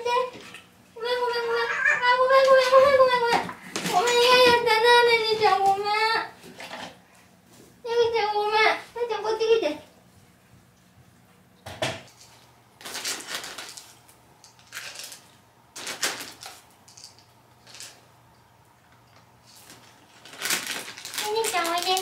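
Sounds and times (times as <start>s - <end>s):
bag crinkling: 12.2s - 18.0s, 19.4s - 22.0s
dry kibble rattling: 12.2s - 18.0s, 19.4s - 22.0s.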